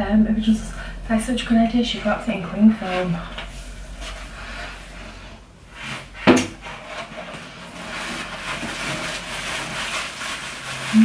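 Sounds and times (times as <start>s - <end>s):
plastic packaging crinkling: 7.7s - 11.0s.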